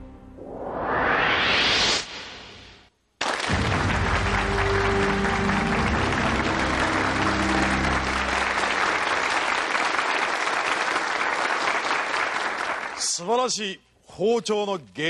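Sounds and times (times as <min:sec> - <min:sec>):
music: 0:00.0 - 0:00.4, 0:03.5 - 0:09.4
audience applauding: 0:03.2 - 0:13.2.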